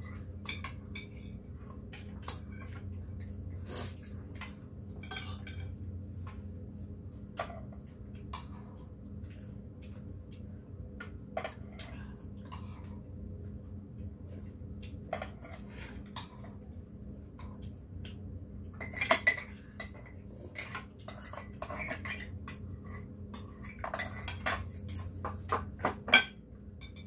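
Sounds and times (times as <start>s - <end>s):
steady low hum: 0.0s - 27.0s
utensils clinking against bowls: 0.2s - 5.8s, 18.7s - 27.0s.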